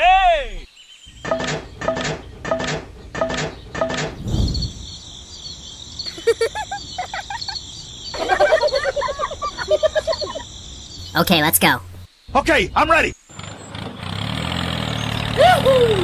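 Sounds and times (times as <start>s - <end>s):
high-pitched background noise: 11.0s - 12.1s.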